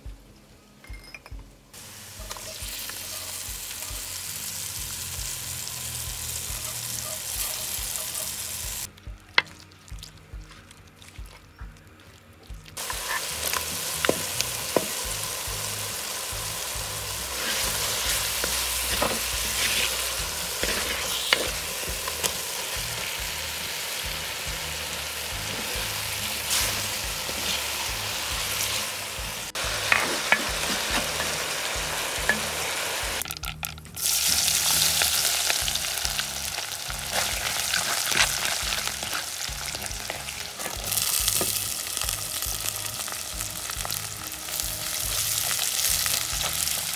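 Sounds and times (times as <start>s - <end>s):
food sizzling in a pot: 1.7s - 8.9s, 12.8s - 46.9s
onions falling into hot oil: 12.7s - 23.3s, 25.3s - 46.9s
wooden spoon scraping: 12.8s - 14.9s, 17.2s - 22.4s, 26.4s - 28.9s, 29.5s - 31.5s.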